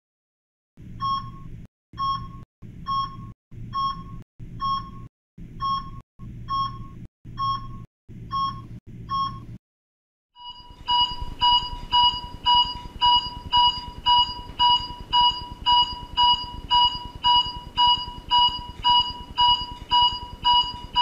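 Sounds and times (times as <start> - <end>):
short electronic beeps: 10.4 - 21.0.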